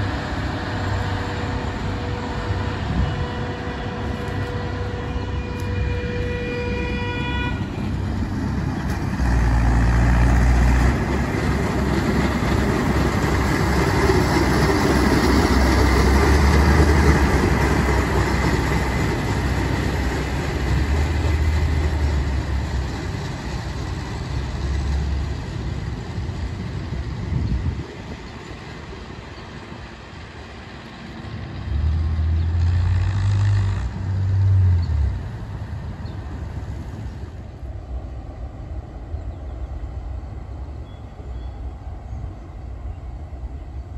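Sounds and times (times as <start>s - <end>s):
rail machines rumbling: 0.0s - 43.9s
horn note: 3.2s - 7.7s.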